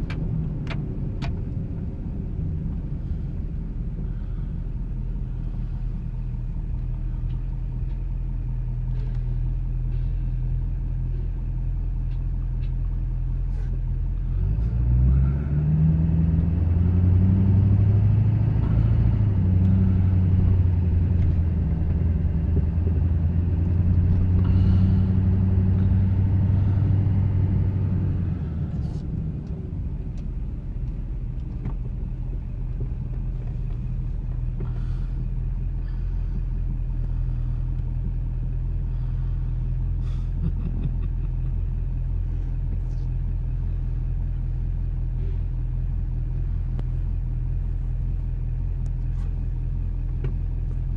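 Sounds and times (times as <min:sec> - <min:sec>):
truck engine droning: 0:00.0 - 0:50.9.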